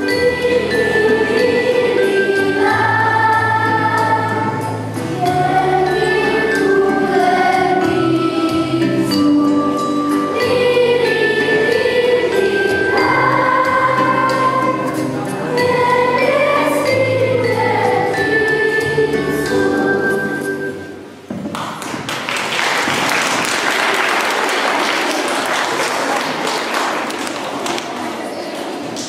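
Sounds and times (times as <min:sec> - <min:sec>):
children's choir singing a carol: 0:00.0 - 0:21.1
musical accompaniment: 0:00.0 - 0:22.0
audience clapping: 0:21.4 - 0:29.0.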